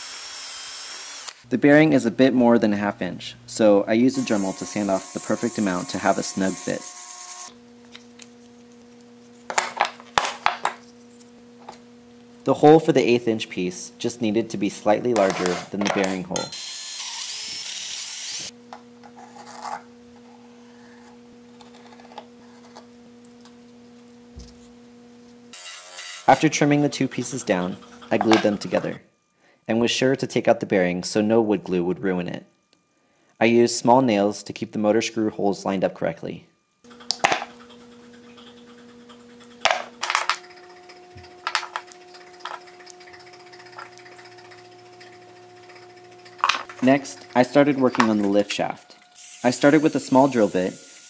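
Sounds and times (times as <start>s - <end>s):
pencil scratching on plywood: 27.3s - 28.6s
low hum: 36.6s - 49.2s.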